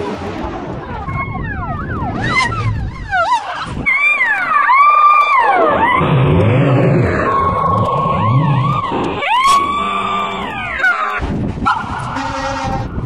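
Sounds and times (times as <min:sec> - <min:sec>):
fire engine siren: 0:00.4 - 0:13.0
low rumble: 0:05.3 - 0:11.7.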